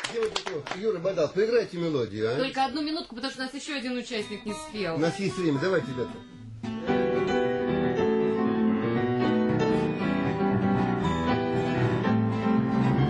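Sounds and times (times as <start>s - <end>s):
piano melody: 4.2s - 13.0s.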